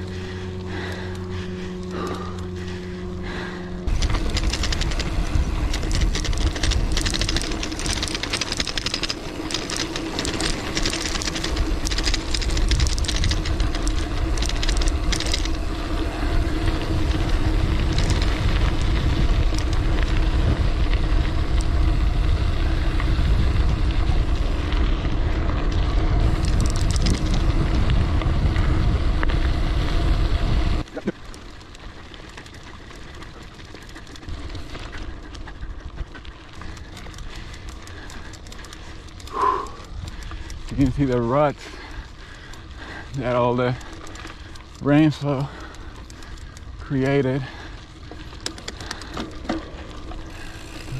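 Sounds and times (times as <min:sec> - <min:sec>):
wind rumble on microphone: 0:00.0 - 0:31.1
tyres crunching over dirt: 0:00.0 - 0:50.9.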